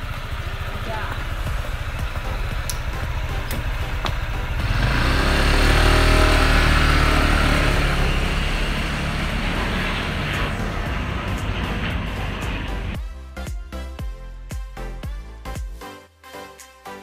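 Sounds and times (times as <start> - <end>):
motor scooter engine revving: 0.0 - 13.0
street noise: 0.0 - 13.1.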